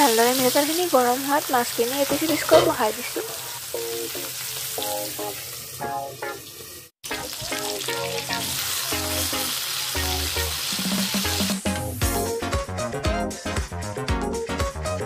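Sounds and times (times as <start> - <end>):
fish sizzling in hot oil: 0.0 - 11.8
background music: 7.0 - 15.0.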